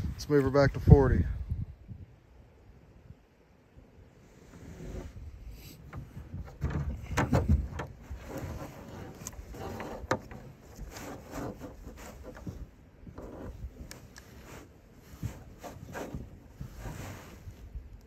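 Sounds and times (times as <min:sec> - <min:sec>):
handling rustling and rubbing: 0:04.2 - 0:18.0
dull bump: 0:05.8 - 0:13.5.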